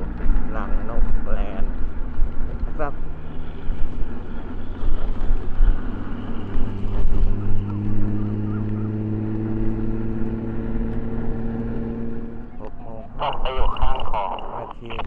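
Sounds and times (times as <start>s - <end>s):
gusty wind rumble on microphone: 0.0s - 15.0s
vehicle traffic hum: 0.0s - 15.0s.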